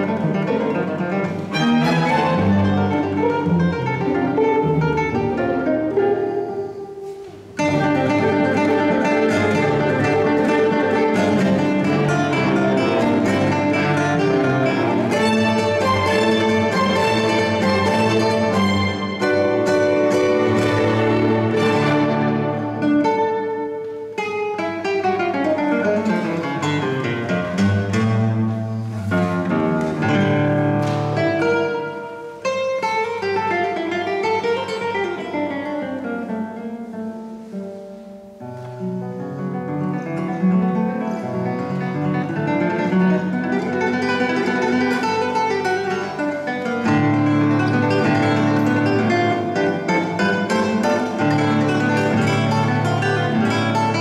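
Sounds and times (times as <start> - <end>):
classical guitar: 0.0 - 54.0
string orchestra: 0.8 - 4.4, 7.6 - 23.4.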